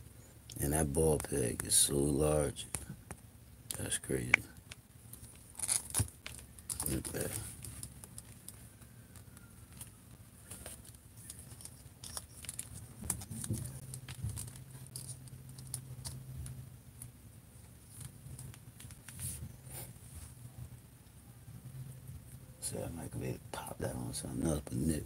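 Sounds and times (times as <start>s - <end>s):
plastic toy clicks and rubbing: 5.2s - 16.2s.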